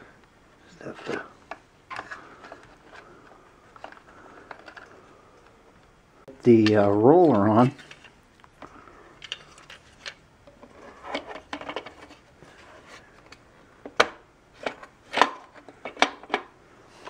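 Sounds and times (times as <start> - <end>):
plastic parts knocking and clicking: 1.1 - 5.5, 6.6 - 12.2, 13.2 - 16.5.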